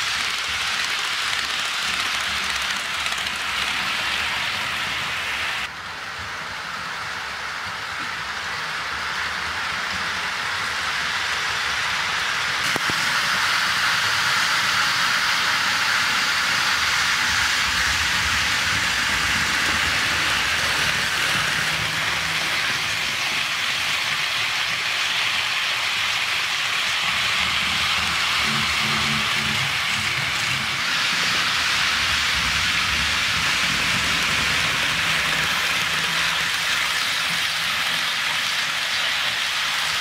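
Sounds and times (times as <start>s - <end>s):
model train rolling on track: 0.0s - 40.0s.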